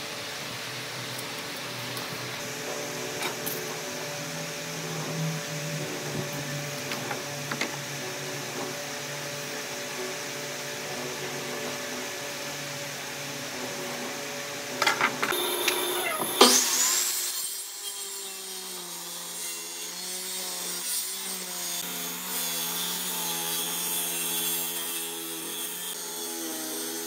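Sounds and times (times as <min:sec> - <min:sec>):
low mechanical hum: 0:00.0 - 0:16.8
power tool whine starting up: 0:00.1 - 0:17.4.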